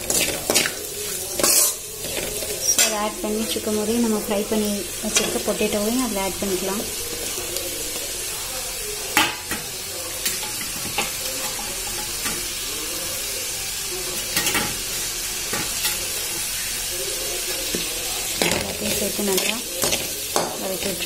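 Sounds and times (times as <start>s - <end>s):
steel spoon scraping a pan: 0.0s - 3.6s
vegetables sizzling in hot oil: 0.0s - 21.0s.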